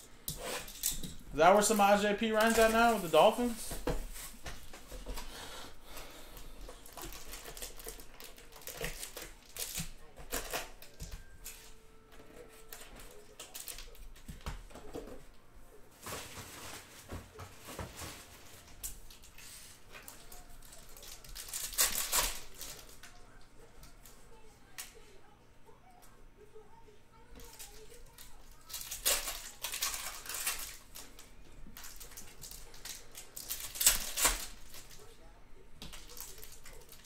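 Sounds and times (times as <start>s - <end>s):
plastic wrap crinkling: 0.4s - 5.2s, 6.4s - 11.6s, 16.0s - 23.2s, 27.4s - 35.1s, 35.8s - 37.0s.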